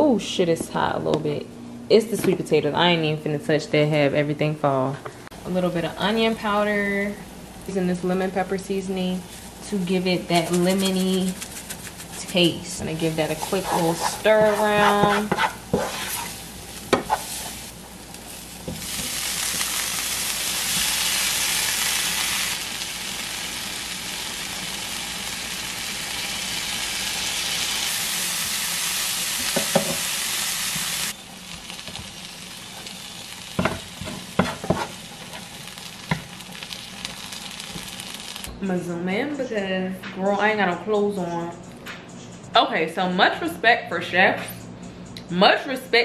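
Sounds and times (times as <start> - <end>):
vegetables sizzling in a frying pan: 5.4 - 38.5
wooden spatula knocking: 13.6 - 15.9.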